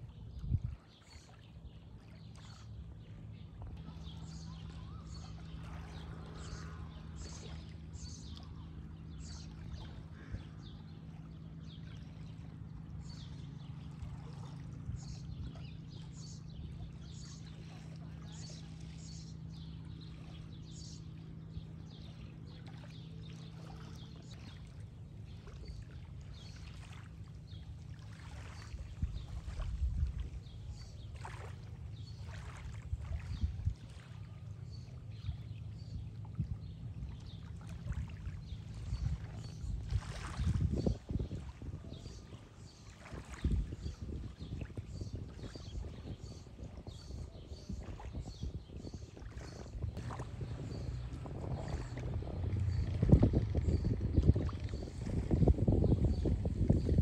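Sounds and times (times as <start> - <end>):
boat engine humming: 0.0 - 57.0
waves lapping at shore: 0.0 - 57.0
low rumbles: 47.8 - 57.0.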